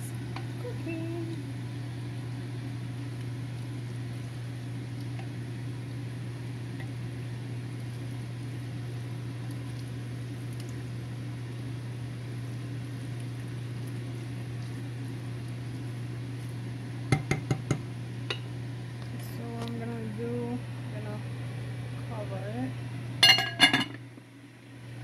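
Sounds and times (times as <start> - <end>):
appliance motor humming and hissing: 0.0 - 25.0.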